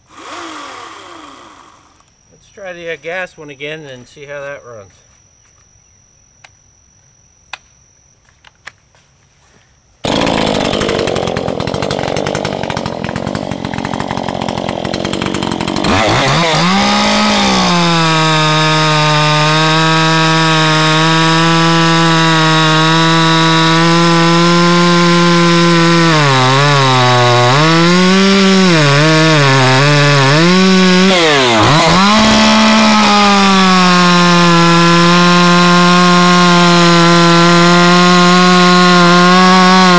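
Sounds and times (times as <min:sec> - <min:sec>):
chainsaw cutting log: 0:00.0 - 0:02.1, 0:10.0 - 0:39.9.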